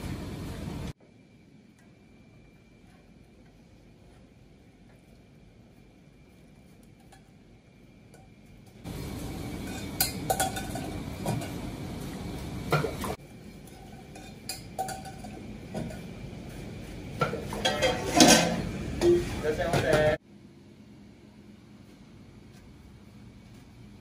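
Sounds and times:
kitchen background noise: 0:00.0 - 0:20.2
pots and bowls clinking: 0:06.8 - 0:07.4, 0:09.0 - 0:12.1, 0:12.7 - 0:16.2, 0:17.2 - 0:20.2.

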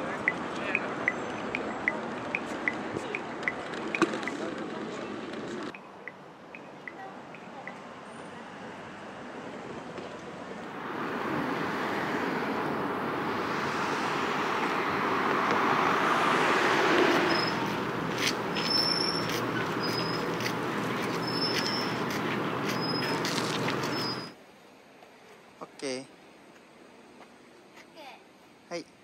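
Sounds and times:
road traffic rushing: 0:00.0 - 0:24.4.

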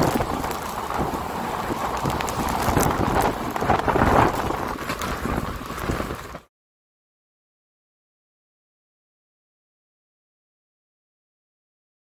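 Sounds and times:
raindrop ticks: 0:00.0 - 0:06.4
train running noise: 0:00.0 - 0:06.5
wind rushing over microphone: 0:00.0 - 0:06.5.

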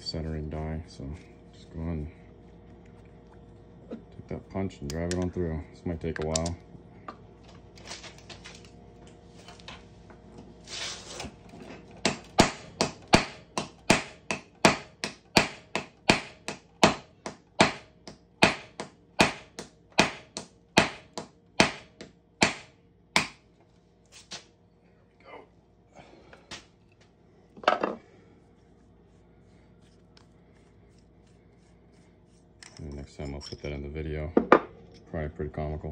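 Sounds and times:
hammer striking metal punch: 0:12.0 - 0:23.4.

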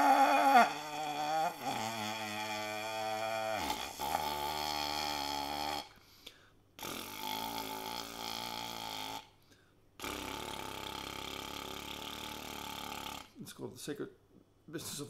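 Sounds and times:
lip buzzing through brass mouthpiece: 0:00.0 - 0:06.0, 0:06.8 - 0:09.3, 0:10.0 - 0:13.4
short breaths: 0:05.9 - 0:06.7, 0:09.4 - 0:09.9.

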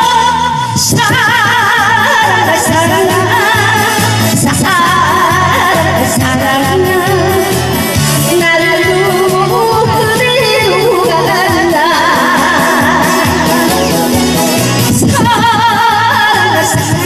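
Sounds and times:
backing track music: 0:00.0 - 0:17.0
woman singing with vibrato: 0:00.0 - 0:17.0.

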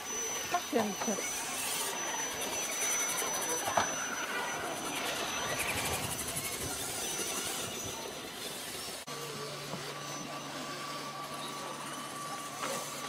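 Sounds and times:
model truck electric motor whirring: 0:00.0 - 0:13.0
short rising chirp: 0:01.2 - 0:09.1.

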